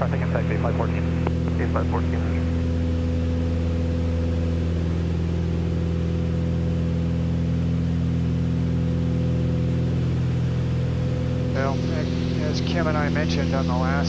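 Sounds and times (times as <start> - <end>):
aircraft engines humming in cockpit: 0.0 - 14.0.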